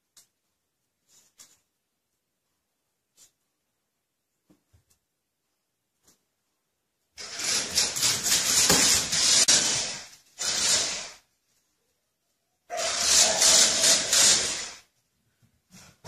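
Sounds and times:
toy car motor whirring: 7.2s - 11.3s, 12.7s - 14.9s.

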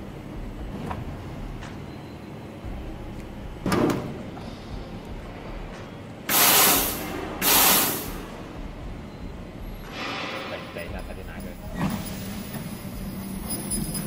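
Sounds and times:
compressed air hissing blasts: 6.3s - 8.3s.

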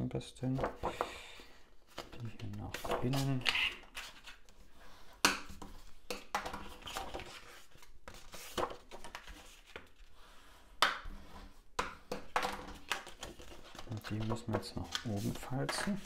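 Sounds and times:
paper rustling and sliding: 1.9s - 5.9s, 6.6s - 10.5s, 12.8s - 16.0s.

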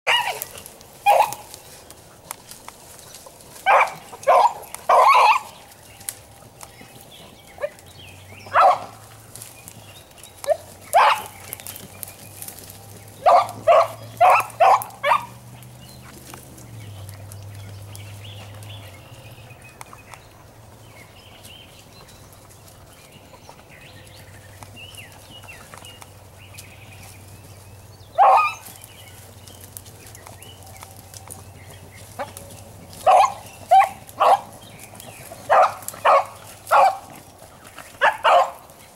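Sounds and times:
sharp dog barks: 8.5s - 8.9s, 13.2s - 15.4s, 28.2s - 28.6s, 38.0s - 38.6s.

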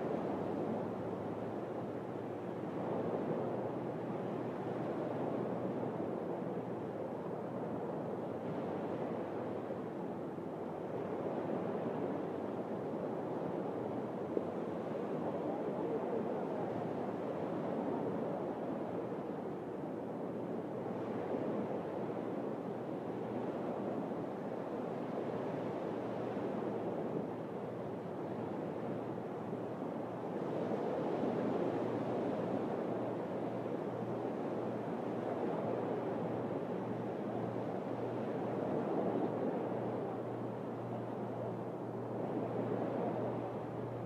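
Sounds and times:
low steady hum: 24.5s - 44.0s.

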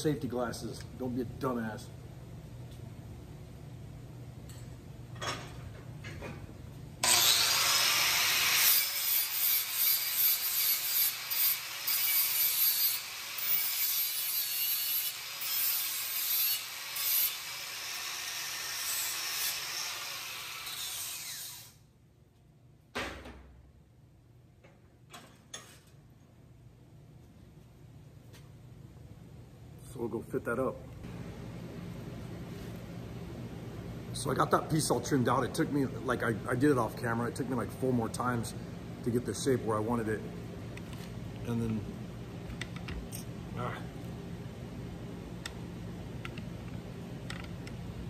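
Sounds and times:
electric grinder grinding metal: 7.0s - 21.7s.

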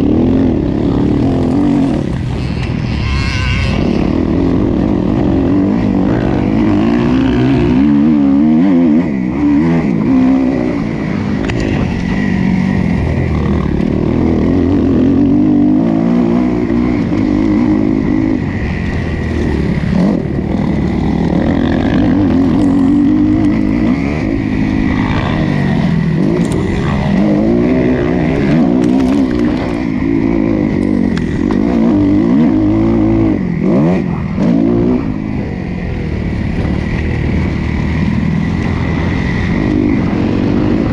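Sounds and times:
motocross bike engine revving: 0.0s - 40.9s.

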